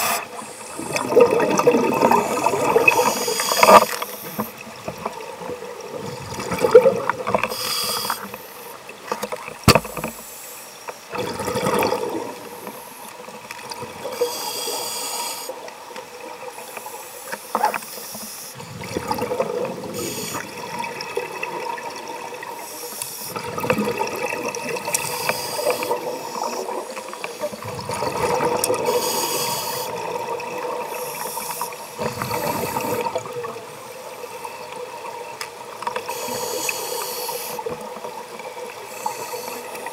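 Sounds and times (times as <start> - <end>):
regulator hissing inhale: 0.0 - 1.0, 2.1 - 4.6, 7.4 - 8.8, 10.1 - 11.0, 14.0 - 15.7, 16.6 - 18.8, 19.9 - 20.6, 22.6 - 23.4, 24.9 - 27.6, 28.8 - 30.2, 30.9 - 33.2, 36.0 - 37.8, 38.7 - 39.9
exhaled bubbles underwater: 0.0 - 7.5, 11.1 - 14.8, 18.6 - 22.6, 23.2 - 39.9.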